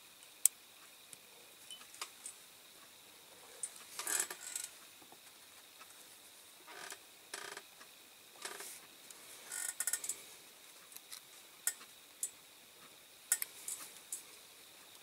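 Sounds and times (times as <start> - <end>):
small toy parts clicking: 13.3 - 14.2.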